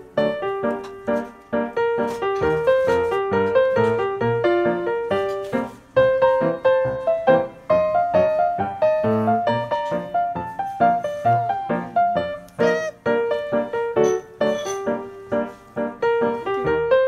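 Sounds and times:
keyboard music: 6.9s - 14.4s.

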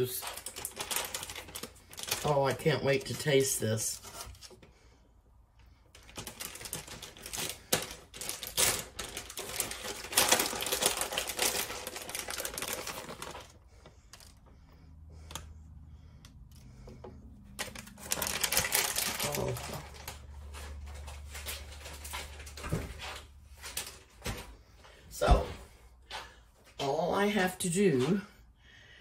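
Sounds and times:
plastic bag crinkling: 0.0s - 4.6s, 5.8s - 14.5s, 17.5s - 24.5s.

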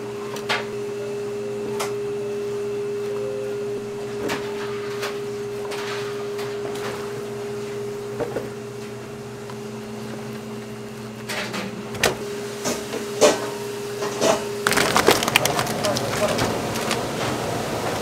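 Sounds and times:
steady mechanical hum: 0.0s - 18.0s
utensils clattering: 14.6s - 17.3s.

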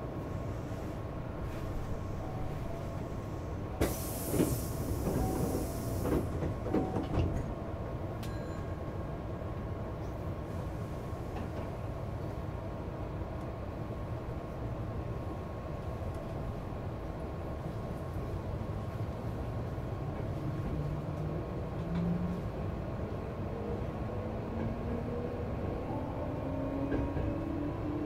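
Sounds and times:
train humming: 0.0s - 28.0s
compressed air hiss: 3.8s - 6.1s.

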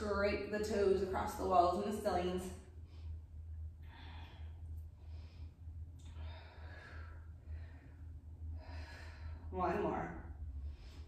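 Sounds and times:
steady low hum: 0.0s - 11.0s
woman breathing hard: 2.6s - 9.5s.

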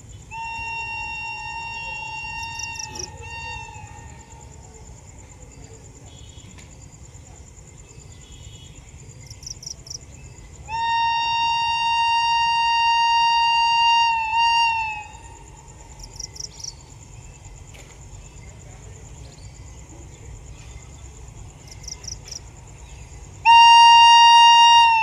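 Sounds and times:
high insect trill: 0.0s - 23.5s
locomotive horn blast: 0.3s - 4.3s, 10.7s - 15.4s, 23.4s - 25.0s.

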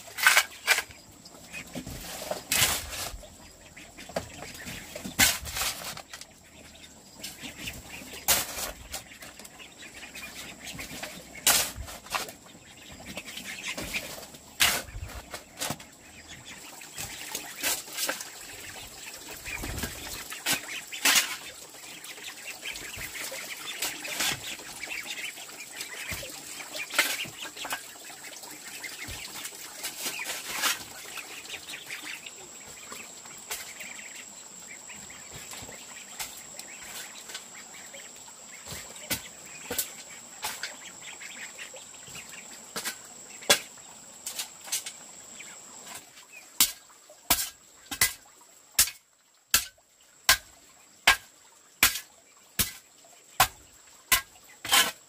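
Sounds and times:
ducks calling: 0.0s - 42.6s.

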